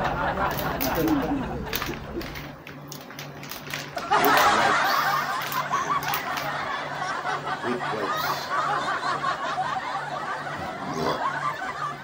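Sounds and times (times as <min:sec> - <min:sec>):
people chattering and laughing: 0:00.0 - 0:02.6, 0:04.0 - 0:12.0.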